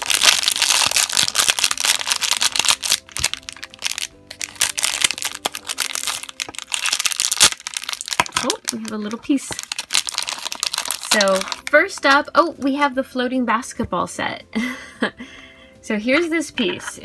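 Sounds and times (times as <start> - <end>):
plastic foil bag crinkling: 0.0 - 12.2
faint background music: 0.0 - 17.0.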